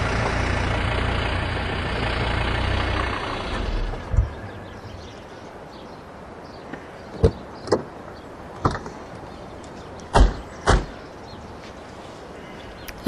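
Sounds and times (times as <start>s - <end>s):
truck doors clicking and knocking: 8.6s - 9.0s.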